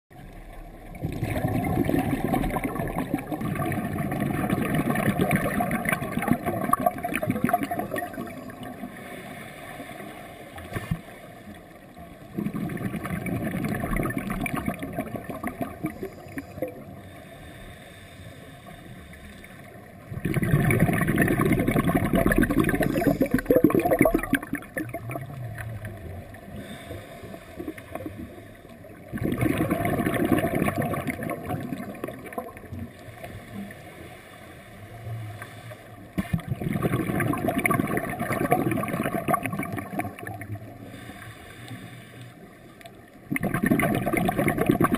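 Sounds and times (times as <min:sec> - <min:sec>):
underwater air bubbling: 0:00.1 - 0:44.9.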